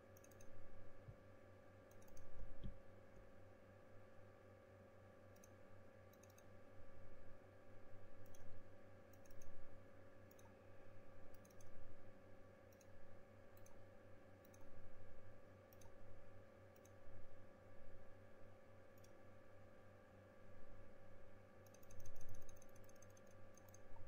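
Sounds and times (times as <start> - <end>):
low electrical hum: 0.0 - 24.0
computer mouse clicks: 0.1 - 0.6, 1.9 - 2.8, 5.3 - 6.5, 8.2 - 9.6, 10.2 - 10.6, 11.3 - 11.8, 12.7 - 13.0, 13.6 - 13.8, 14.4 - 14.7, 15.7 - 16.0, 16.7 - 17.0, 19.0 - 19.2, 21.6 - 24.0.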